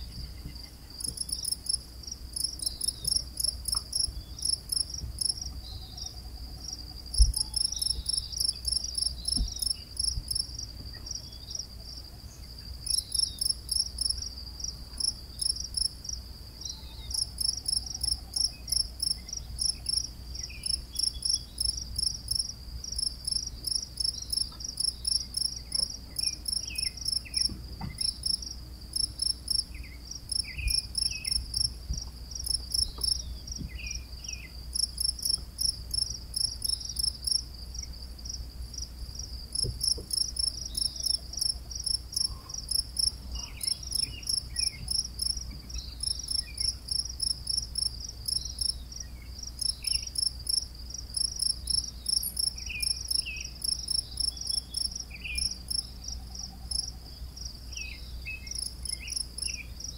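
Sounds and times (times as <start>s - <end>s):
crickets chirping: 0.0s - 59.9s
single thump: 7.2s - 7.4s.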